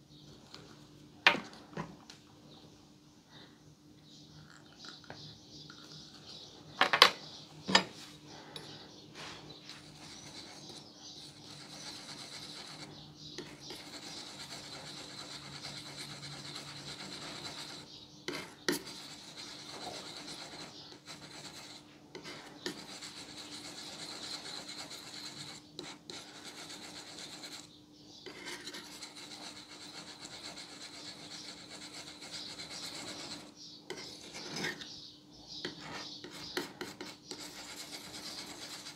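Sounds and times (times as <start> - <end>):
palette knife scraping paint: 9.6 - 38.9.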